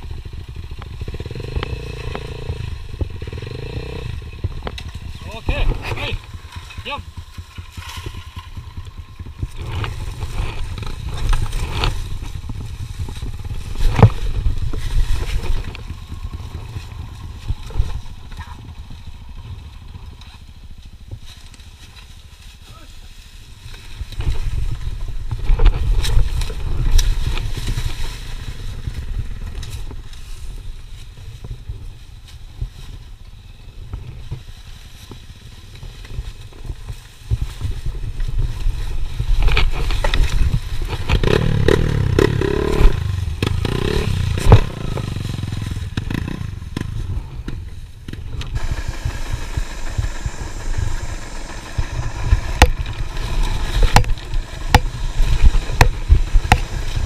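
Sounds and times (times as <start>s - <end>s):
dirt bike engine running: 0.0s - 57.0s
bike knocking over rocks: 39.2s - 57.0s.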